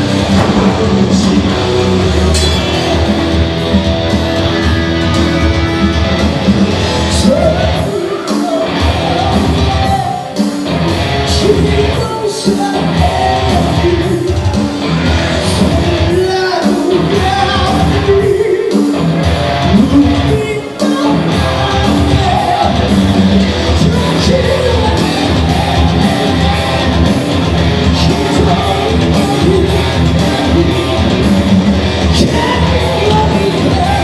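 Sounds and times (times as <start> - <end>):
driving drum beat: 0.0 - 34.0
hard rock music: 0.0 - 34.0
person singing: 7.0 - 10.6, 11.2 - 14.5, 15.4 - 19.0, 19.6 - 23.0, 23.7 - 27.2, 27.8 - 34.0.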